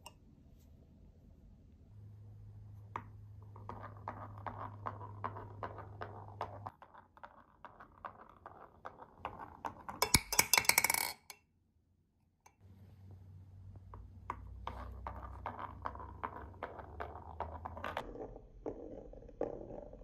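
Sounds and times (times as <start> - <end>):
marble rolling on wooden track: 3.0 - 11.3, 13.8 - 20.0.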